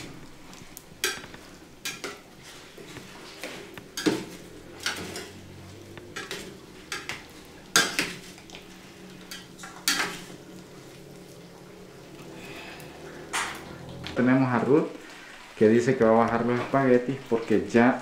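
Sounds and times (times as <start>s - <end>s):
spoon scraping in a pot: 0.6s - 10.9s.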